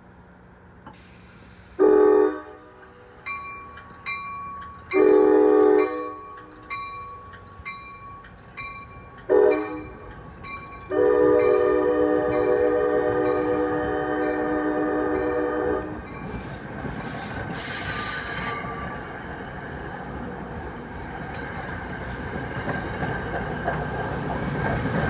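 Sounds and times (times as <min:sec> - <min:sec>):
train horn blasts: 0:01.8 - 0:02.8, 0:04.9 - 0:06.5, 0:09.3 - 0:10.0, 0:10.9 - 0:16.1.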